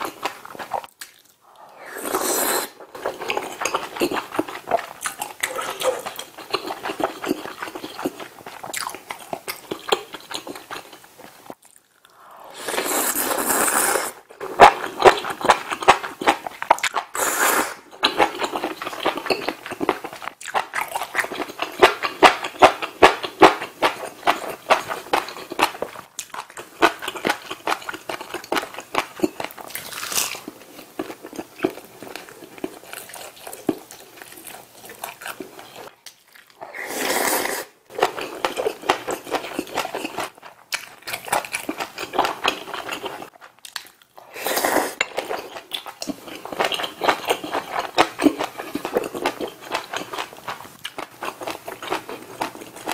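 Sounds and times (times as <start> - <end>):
wet chewing with smacks: 0.0 - 1.7.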